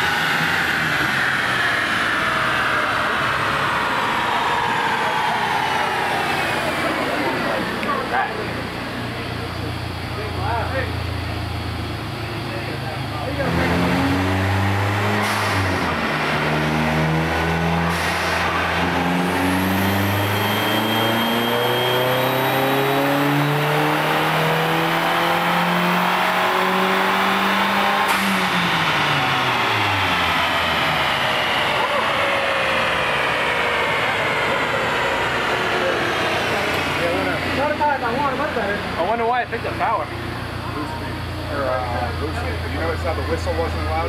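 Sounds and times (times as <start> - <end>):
car engine revving under load: 0.0 - 44.0
turbo whistle: 19.3 - 22.3.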